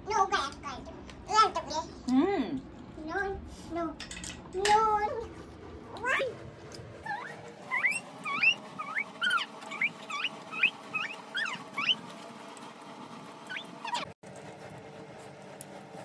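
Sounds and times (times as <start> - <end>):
animal high-pitched cries: 7.0 - 12.0, 13.5 - 14.2.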